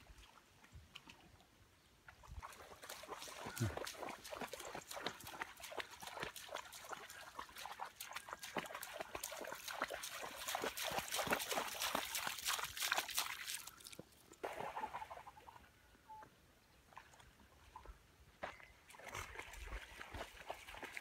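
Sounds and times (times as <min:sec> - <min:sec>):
dog splashing through water: 0:02.3 - 0:15.1.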